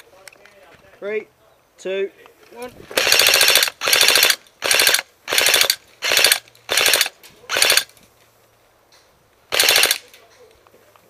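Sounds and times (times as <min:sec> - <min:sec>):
airsoft gun firing full auto: 0:03.0 - 0:07.9, 0:09.5 - 0:10.1.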